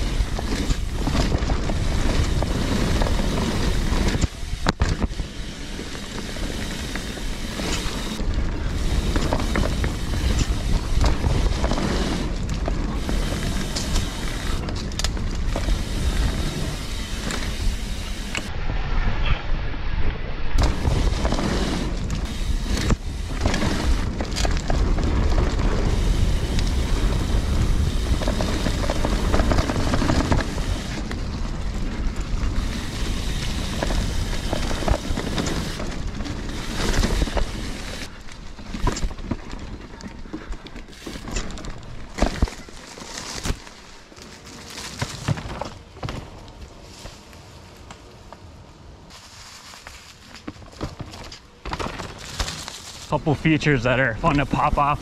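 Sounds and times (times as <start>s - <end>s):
bike knocking and rattling: 0.0s - 18.5s, 20.6s - 53.6s
bike tyre noise: 0.0s - 55.0s
wind rumble on microphone: 6.0s - 38.1s.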